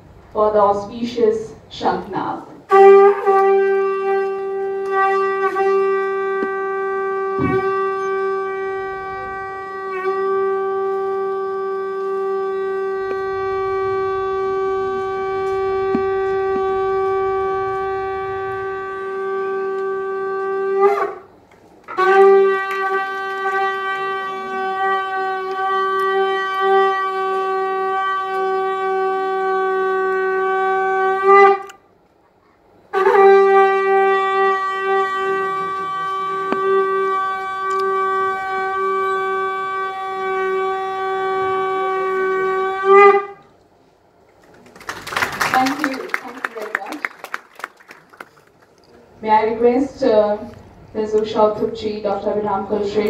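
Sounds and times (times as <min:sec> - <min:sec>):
conch shell blast: 0:02.6 - 0:32.0, 0:32.8 - 0:43.6.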